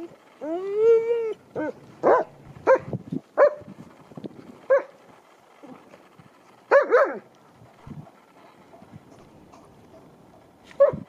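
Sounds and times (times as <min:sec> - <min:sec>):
dog play barks: 0:01.6 - 0:03.7, 0:04.7 - 0:05.0, 0:06.7 - 0:07.3.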